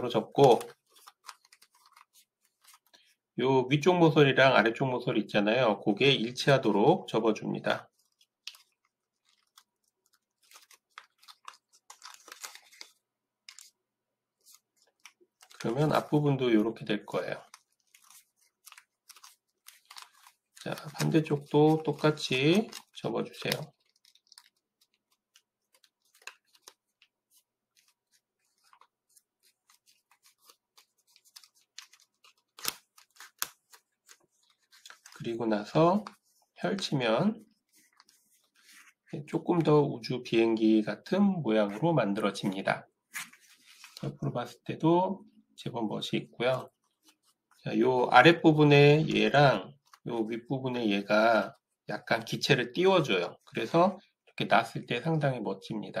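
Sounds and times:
paper crackling and scraping: 0:00.0 - 0:03.2, 0:07.8 - 0:13.8, 0:14.4 - 0:39.3.

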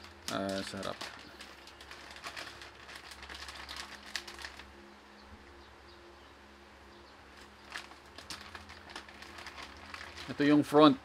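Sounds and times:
plastic bag crinkling: 0:00.0 - 0:04.7, 0:07.4 - 0:10.8.

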